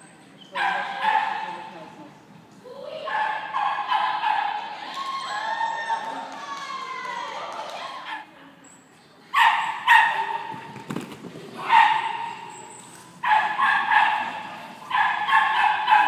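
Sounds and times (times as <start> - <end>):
dog barking in high yaps: 9.4 - 10.5, 13.2 - 16.0.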